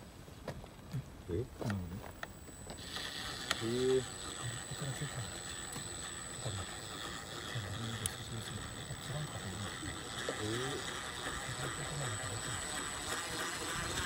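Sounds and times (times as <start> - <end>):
electric motor and gears whining: 1.5 - 14.0
sharp clicks: 1.7 - 14.0.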